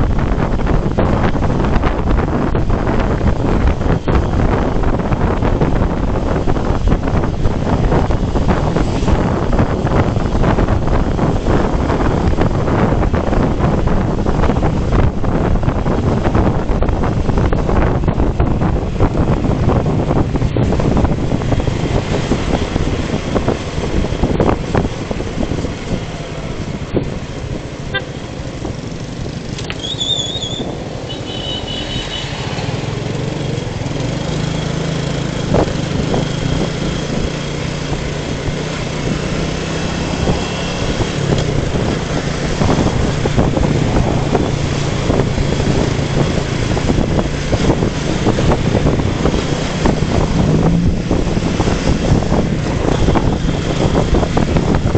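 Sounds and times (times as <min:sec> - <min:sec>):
motorcycle engine hum: 0:00.0 - 0:54.9
wind rushing over camera: 0:00.0 - 0:54.9
high wavering horn toot: 0:29.8 - 0:32.4.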